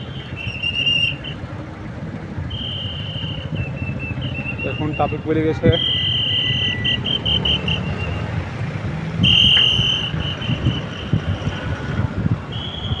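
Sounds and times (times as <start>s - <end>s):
road traffic: 0.0s - 13.0s
shrill whistle-like tone: 0.2s - 1.4s, 2.5s - 8.2s, 9.2s - 11.1s, 12.5s - 13.0s
wind on microphone: 9.2s - 13.0s.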